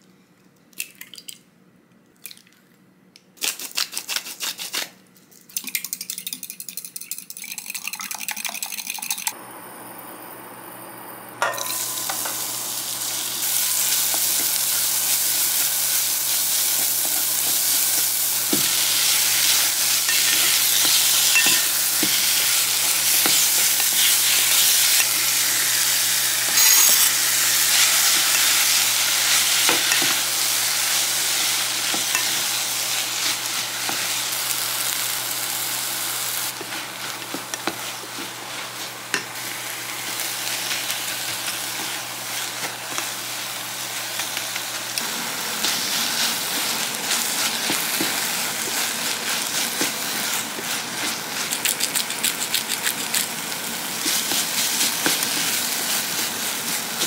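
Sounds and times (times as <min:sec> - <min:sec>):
eggs beaten in glass cup: 0:05.6 - 0:09.3
onion and meat sizzling in pot: 0:09.3 - 0:57.0.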